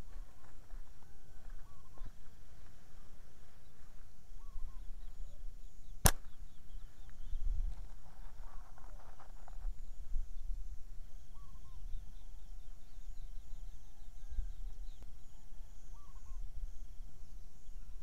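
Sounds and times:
bird chirps: 2.9 - 7.7, 11.1 - 18.0.

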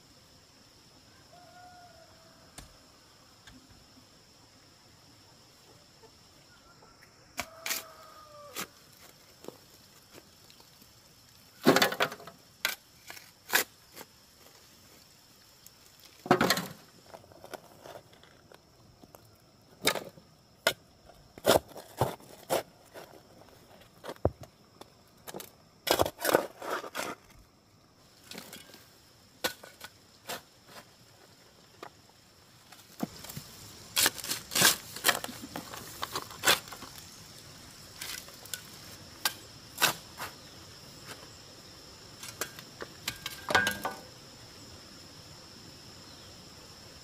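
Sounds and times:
high insect drone: 0.0 - 47.0
stones and tools clattering: 42.2 - 44.1.

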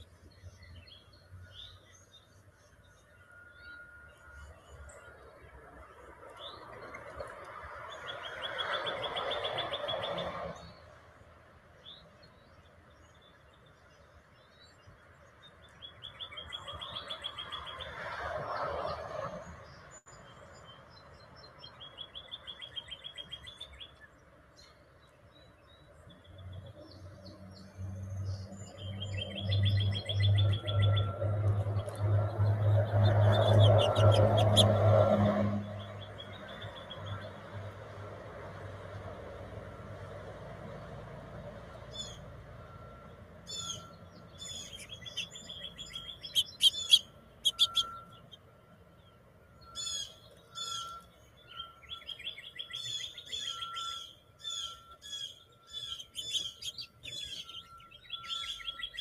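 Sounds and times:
songbird trilling: 32.4 - 35.0, 41.8 - 42.3, 43.0 - 59.0.

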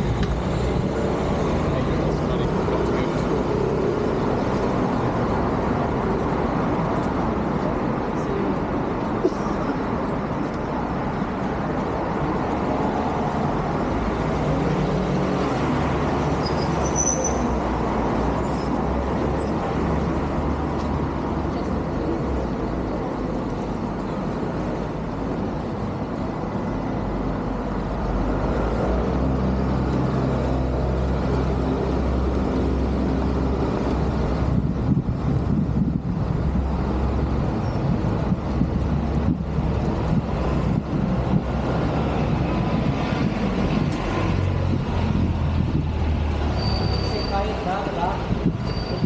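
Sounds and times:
heavy vehicle engine rumble: 0.0 - 49.0
road traffic: 0.0 - 49.0.

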